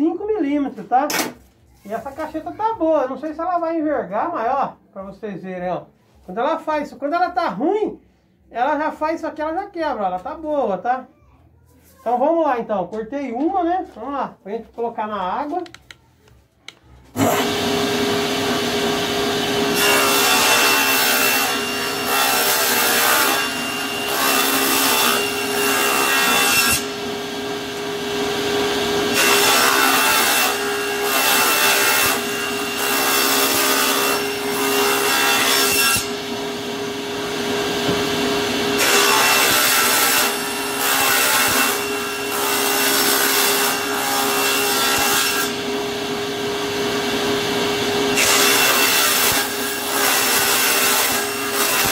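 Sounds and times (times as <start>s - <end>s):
table saw cutting wood: 17.1s - 51.9s.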